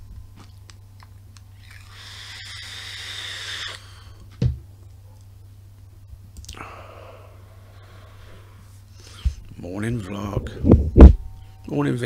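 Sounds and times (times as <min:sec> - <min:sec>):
breath blowing out vapour: 0:01.6 - 0:04.2
hissing vape draw: 0:01.7 - 0:03.9.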